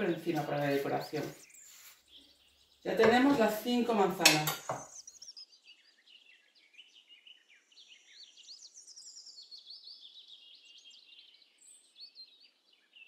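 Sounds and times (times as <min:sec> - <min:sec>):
faint birdsong twittering: 0:00.0 - 0:13.0.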